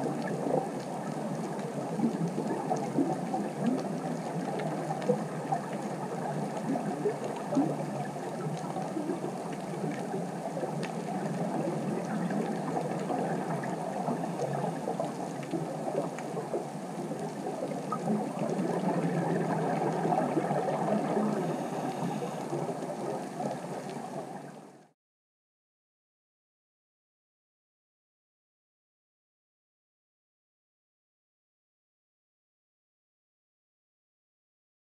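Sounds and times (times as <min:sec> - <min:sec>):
muffled underwater rushing: 0:00.0 - 0:24.9
faint clicks: 0:00.2 - 0:24.9.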